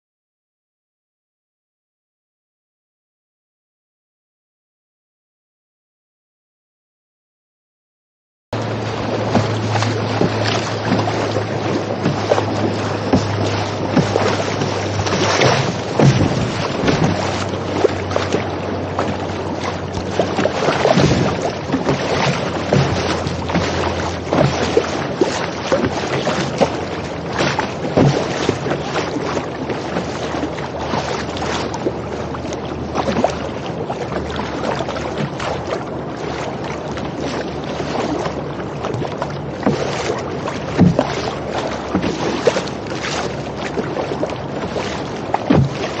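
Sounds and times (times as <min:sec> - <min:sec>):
water rushing along kayak hull: 0:08.6 - 0:46.0
water slapping on bow: 0:08.6 - 0:46.0
wind buffeting microphone: 0:08.6 - 0:46.0.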